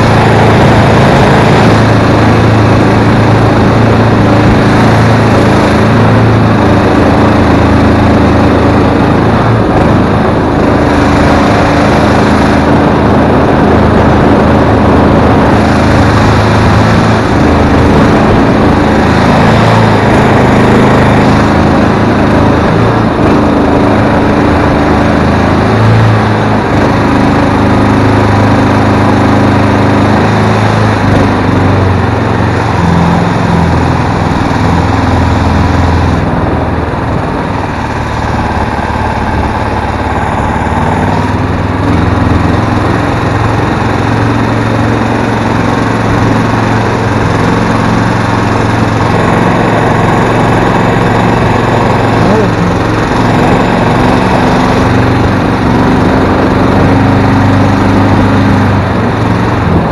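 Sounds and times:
small boat engine running: 0:00.0 - 0:59.9.

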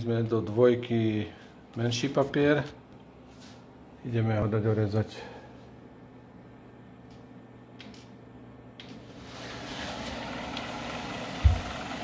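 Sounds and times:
plotter roll drive running: 0:09.2 - 0:12.0.

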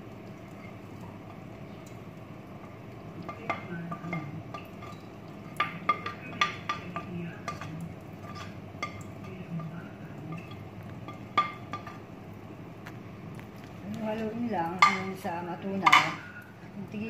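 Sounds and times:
steady low hum: 0:00.0 - 0:17.0
spoon clinking on plate and wok: 0:03.2 - 0:12.0, 0:14.8 - 0:15.2, 0:15.8 - 0:16.3.

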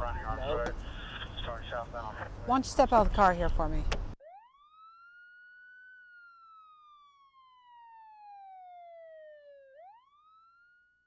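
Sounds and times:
police siren wailing: 0:04.2 - 0:11.0.

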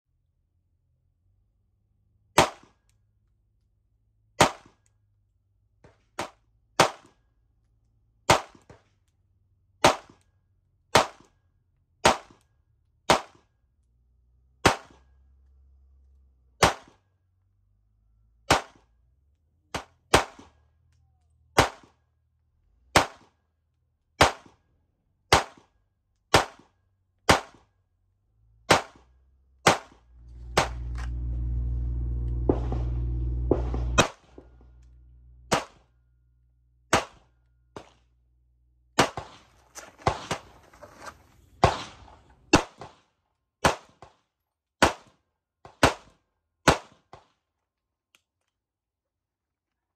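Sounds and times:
pistol shots: 0:04.4 - 0:04.8, 0:16.6 - 0:17.0, 0:19.7 - 0:20.6, 0:21.6 - 0:22.0, 0:22.9 - 0:23.3, 0:24.2 - 0:24.6, 0:25.3 - 0:25.7, 0:26.3 - 0:26.7, 0:27.3 - 0:27.7, 0:28.7 - 0:31.3, 0:32.4 - 0:34.6, 0:35.5 - 0:35.9, 0:36.9 - 0:38.0, 0:39.0 - 0:40.5, 0:41.6 - 0:43.0
low steady hum: 0:29.3 - 0:38.9.

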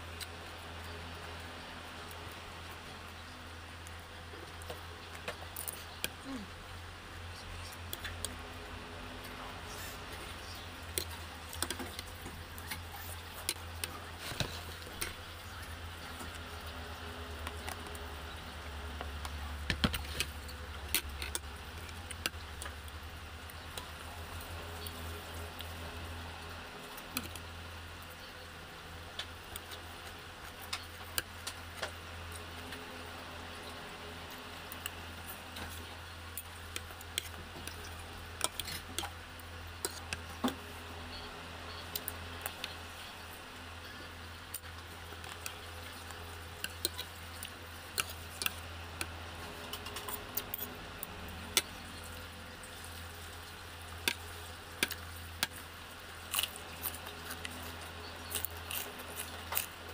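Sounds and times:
steady low hum: 0:00.0 - 0:59.9
chewing: 0:34.2 - 0:39.2, 0:43.8 - 0:55.6, 0:56.2 - 0:59.9.

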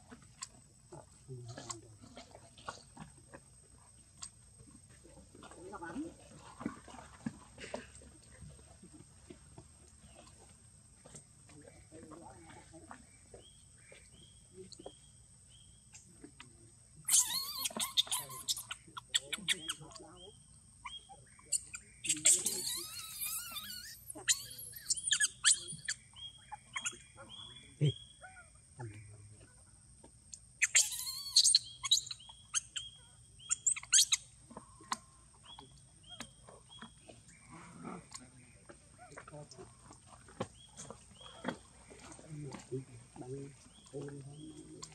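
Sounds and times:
monkey soft chirps: 0:17.0 - 0:20.0, 0:20.8 - 0:28.4, 0:30.3 - 0:37.0
monkey shrill squeals: 0:17.1 - 0:19.8, 0:20.8 - 0:26.0, 0:30.6 - 0:32.9, 0:33.5 - 0:34.2.

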